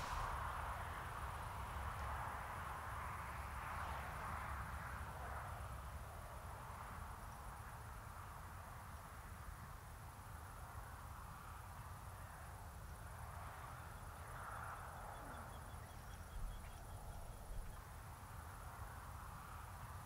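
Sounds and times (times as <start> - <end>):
low rumble: 0.0 - 0.9.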